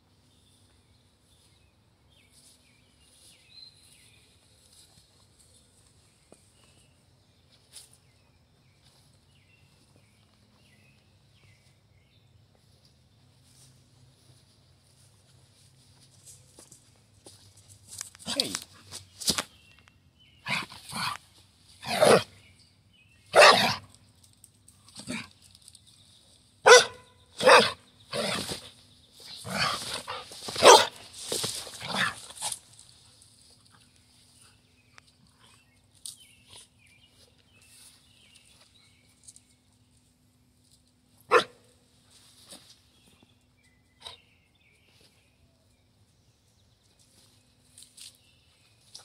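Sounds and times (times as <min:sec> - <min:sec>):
dog barking: 0:21.9 - 0:22.3, 0:23.3 - 0:23.8, 0:26.6 - 0:28.3, 0:30.1 - 0:31.0, 0:41.3 - 0:41.6.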